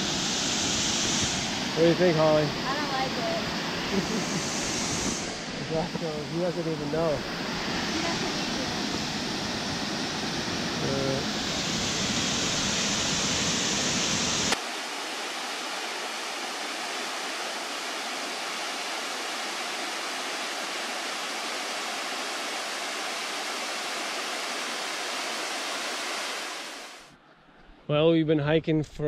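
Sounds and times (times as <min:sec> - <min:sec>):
waterfall rushing: 0:00.0 - 0:27.1.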